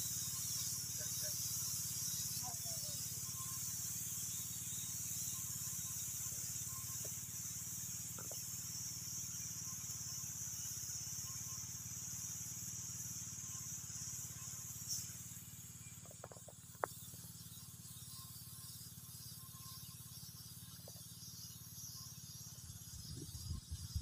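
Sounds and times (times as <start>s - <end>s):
high hiss: 0.0s - 19.4s
sprayer pump engine droning: 0.0s - 24.0s
faint ticks: 15.8s - 17.2s, 20.7s - 21.2s.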